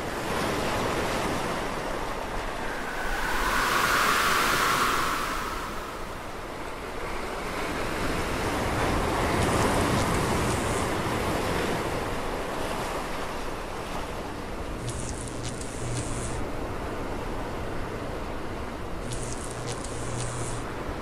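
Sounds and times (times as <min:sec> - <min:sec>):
rushing wind whoosh: 0:01.8 - 0:07.1.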